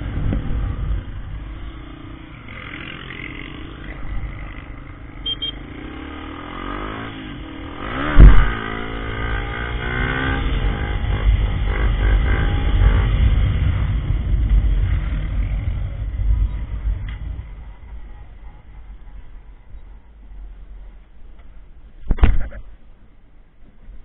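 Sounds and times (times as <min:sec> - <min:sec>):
motorcycle engine revving: 0:00.0 - 0:19.3
wind noise: 0:07.8 - 0:21.0
loud thump: 0:08.1 - 0:08.6.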